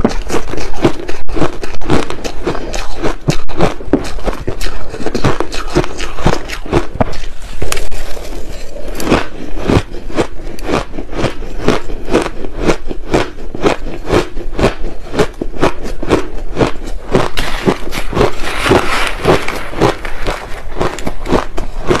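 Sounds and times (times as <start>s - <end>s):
crushed ice being chewed: 0.0s - 22.0s
spoon scraping ice in plastic pot: 16.8s - 21.5s.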